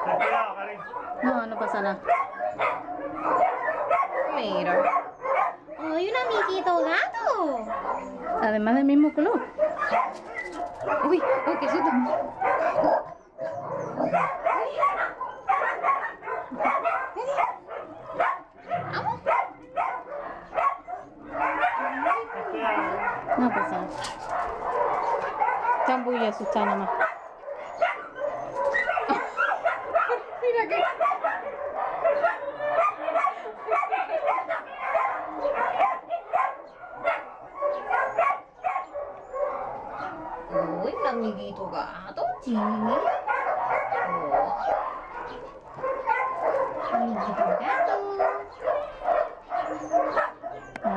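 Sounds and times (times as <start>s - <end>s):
dogs barking and yipping: 0.0s - 50.9s
dog whining and yipping: 7.3s - 17.5s, 27.6s - 30.2s, 43.7s - 50.9s.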